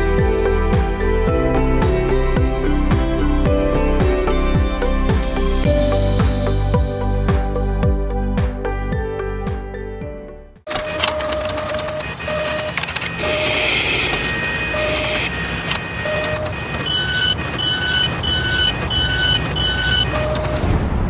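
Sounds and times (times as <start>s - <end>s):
higher beeps: 10.7s - 20.6s
short beeps: 10.7s - 20.6s
mechanical whirring and clattering: 10.7s - 20.7s.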